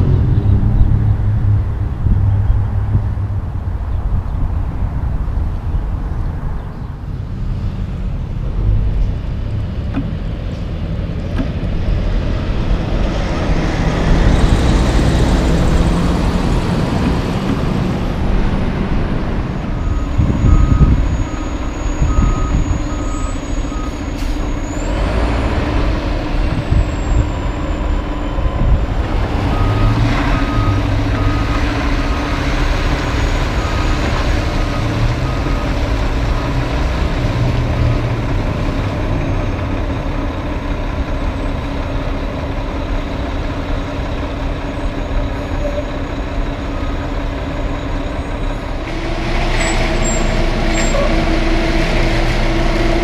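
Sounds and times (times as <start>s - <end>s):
diesel trucks rumbling: 0.0s - 53.0s
truck reversing alarm beeping: 19.4s - 25.8s, 26.4s - 41.9s, 42.6s - 51.7s.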